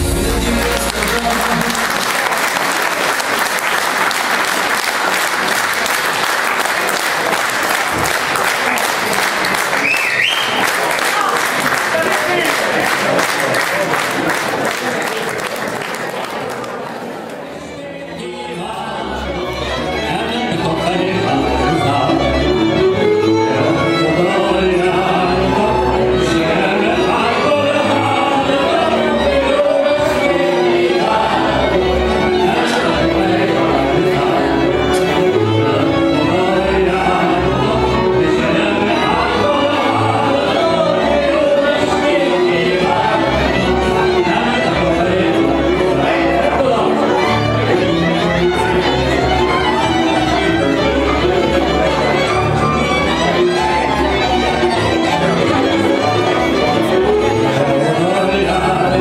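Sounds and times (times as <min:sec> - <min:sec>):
band accompaniment: 0:00.0 - 0:14.4, 0:18.2 - 0:59.0
audience applauding: 0:00.0 - 0:17.5
violin: 0:17.5 - 0:59.0
man singing into microphone: 0:17.7 - 0:49.6, 0:56.3 - 0:59.0.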